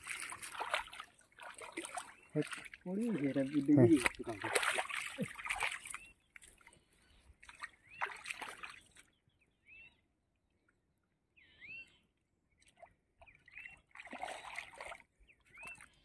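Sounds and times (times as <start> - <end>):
water splashing and dripping: 0.0 - 6.8, 7.4 - 9.0, 12.6 - 15.8.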